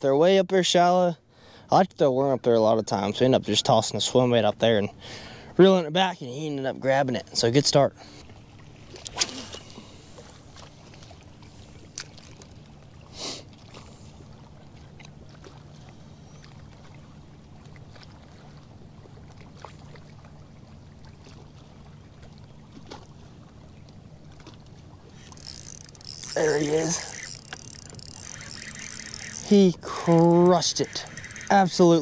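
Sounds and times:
electric trolling motor hum: 25.0s - 32.0s.

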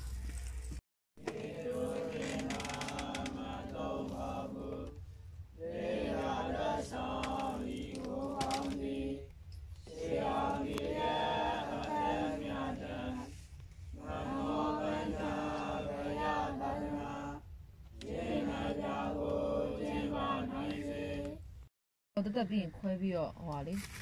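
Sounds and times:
monks chanting in unison: 1.2s - 5.0s, 5.6s - 13.4s, 14.0s - 17.4s, 18.0s - 21.4s.

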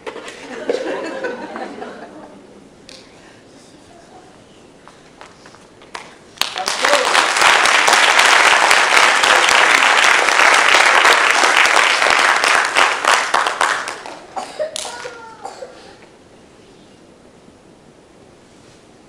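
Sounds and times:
audience applauding: 5.9s - 15.2s.

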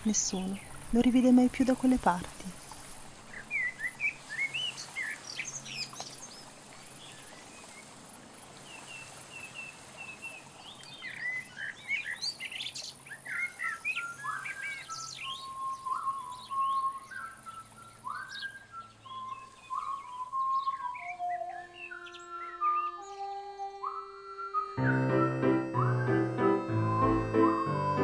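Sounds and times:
songbirds chirping and singing: 8.7s - 28.0s
held whistle-like tone: 14.9s - 28.0s.

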